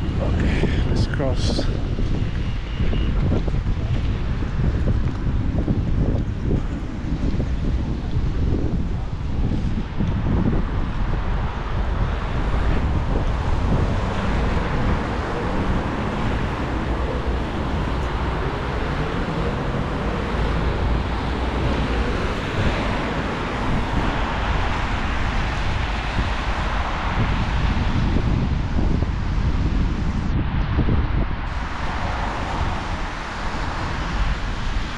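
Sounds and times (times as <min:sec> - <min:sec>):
traffic on wet streets: 0:00.0 - 0:34.9
wind buffeting microphone: 0:00.0 - 0:34.9
rain hiss: 0:31.5 - 0:34.9.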